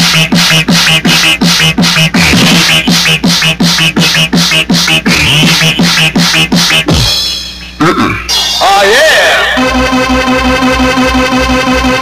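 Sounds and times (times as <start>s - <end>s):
fast techno music: 0.0s - 7.8s, 8.5s - 12.0s
hard kick drum thumps: 0.0s - 8.1s.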